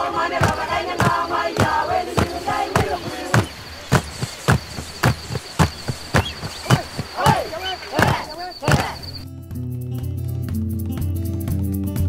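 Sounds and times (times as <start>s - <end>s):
group voices chanting: 0.0s - 5.4s, 6.2s - 9.2s
percussion beat: 0.3s - 12.0s.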